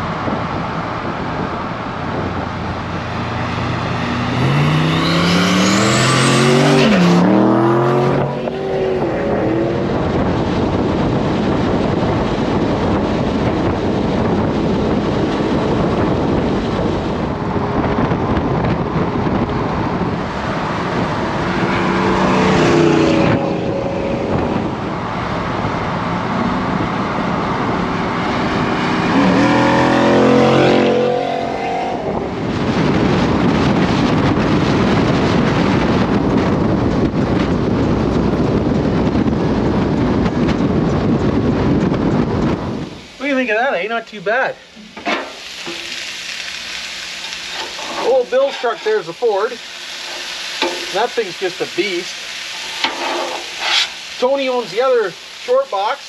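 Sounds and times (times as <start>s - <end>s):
truck engine accelerating: 0.0s - 43.0s
wind noise: 0.0s - 55.7s
road noise: 0.0s - 56.0s.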